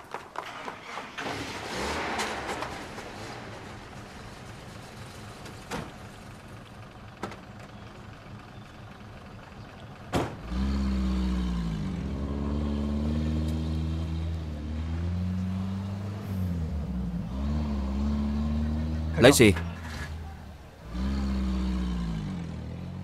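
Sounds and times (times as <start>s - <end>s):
car engine running: 15.0s - 22.7s.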